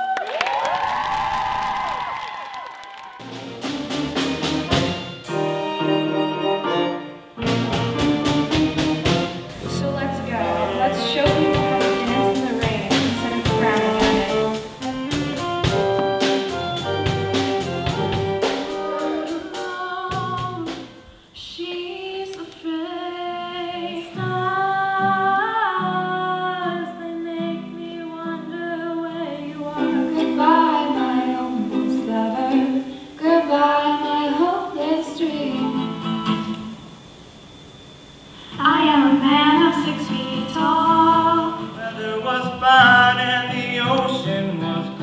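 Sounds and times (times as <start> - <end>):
instrumental passage with sharp hits: 3.2 - 21.1
acoustic guitar and ukulele: 7.4 - 20.8, 23.7 - 36.8, 39.5 - 45.0
women singing: 9.6 - 16.2, 18.6 - 36.5, 38.6 - 41.9.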